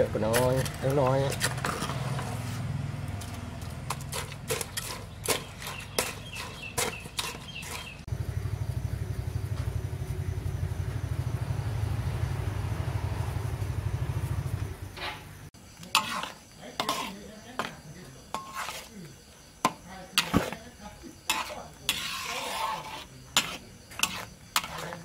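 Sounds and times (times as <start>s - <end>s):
small engine running: 8.1s - 14.7s.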